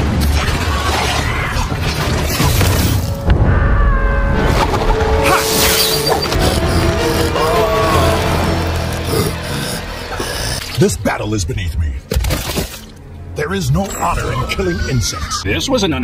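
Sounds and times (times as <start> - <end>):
cartoon soundtrack music: 2.4 - 12.0, 13.1 - 16.0.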